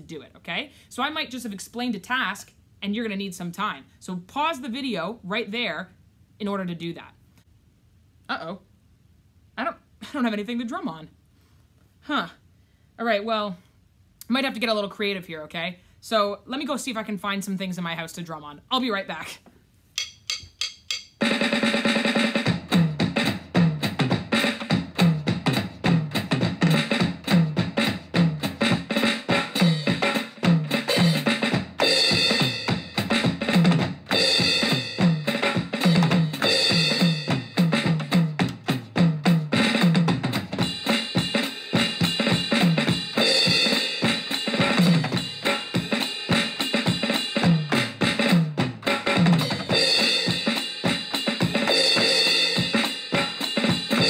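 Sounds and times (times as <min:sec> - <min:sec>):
fast drum beat: 0:20.0 - 0:54.0.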